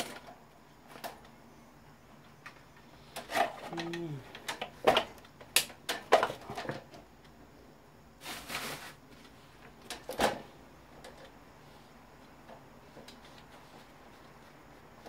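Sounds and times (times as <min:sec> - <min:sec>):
fan parts clacking: 0:02.4 - 0:07.1
scraping rustle: 0:08.2 - 0:10.0.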